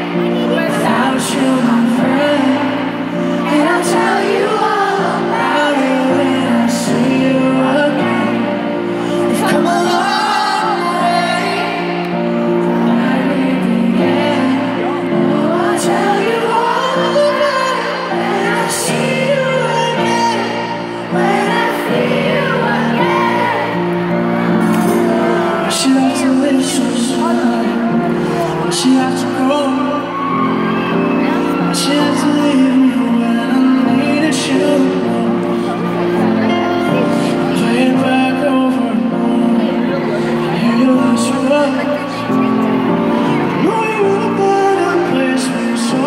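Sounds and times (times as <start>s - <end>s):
audience singing along and whooping: 0.0s - 46.0s
person singing: 0.0s - 46.0s
piano chords: 0.0s - 46.0s.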